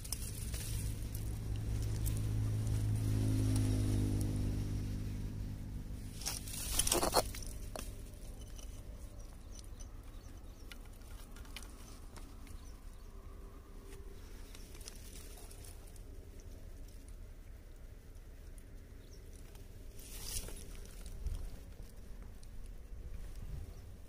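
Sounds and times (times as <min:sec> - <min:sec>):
rustling and clicking: 0:00.0 - 0:04.3, 0:06.1 - 0:12.8
low hum: 0:00.0 - 0:24.0.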